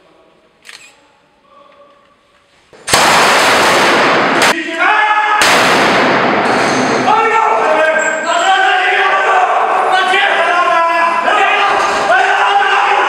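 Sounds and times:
gunfire bursts: 0:02.9 - 0:04.6, 0:05.4 - 0:07.0.

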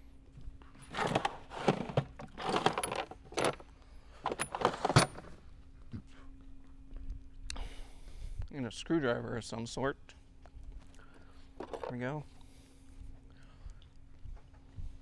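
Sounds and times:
metal tools clattering in toolbox: 0:00.9 - 0:03.6, 0:04.2 - 0:05.4.

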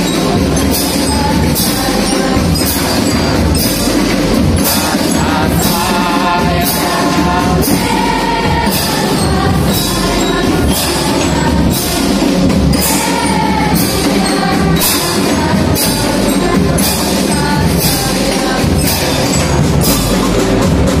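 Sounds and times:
choir singing: 0:00.0 - 0:20.6
cymbal crashes: 0:00.0 - 0:21.0
drum band playing: 0:00.0 - 0:21.0
keyboard: 0:00.0 - 0:21.0.

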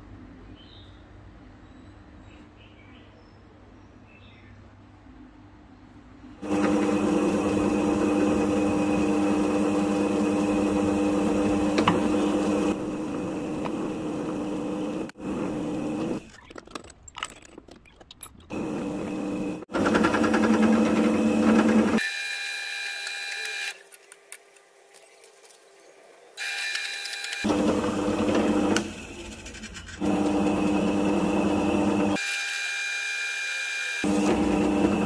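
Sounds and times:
drill press cutting metal: 0:06.4 - 0:16.3, 0:26.4 - 0:29.2, 0:30.0 - 0:35.0.

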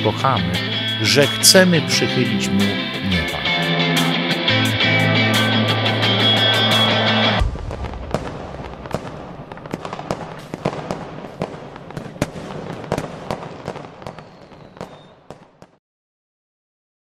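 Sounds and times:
fireworks crackling: 0:06.1 - 0:15.8
fireworks bangs and pops: 0:07.4 - 0:15.8.

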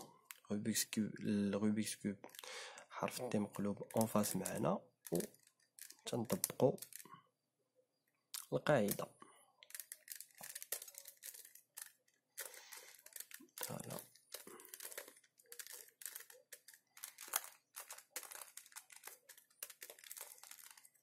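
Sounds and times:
puzzle cube clicking and scraping: 0:03.6 - 0:07.1, 0:09.6 - 0:21.0.

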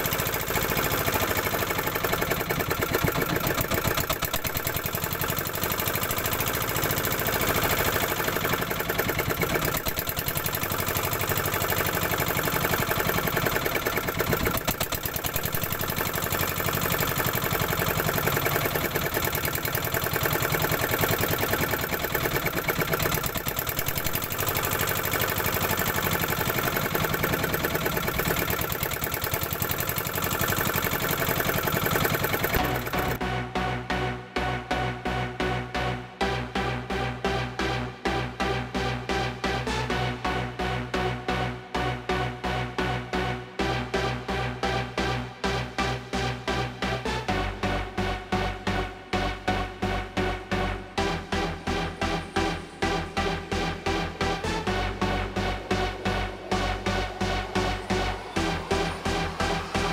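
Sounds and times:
boat engine running: 0:00.0 - 0:33.2.

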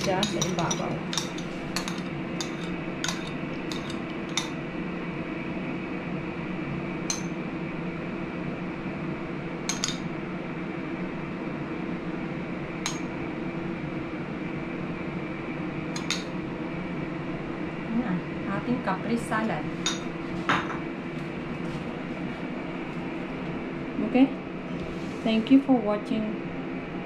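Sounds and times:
tableware clinking: 0:00.0 - 0:04.6, 0:07.1 - 0:07.3, 0:09.7 - 0:10.1, 0:12.9 - 0:13.1, 0:16.0 - 0:16.3, 0:19.8 - 0:20.8
background hum: 0:00.0 - 0:27.0.

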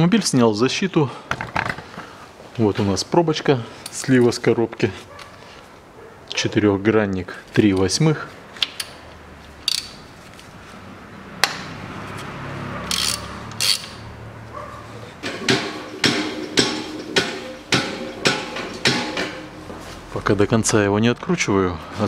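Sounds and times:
wrench clicks: 0:09.6 - 0:10.0, 0:12.9 - 0:14.1
sharp metallic knocks: 0:15.2 - 0:19.7.

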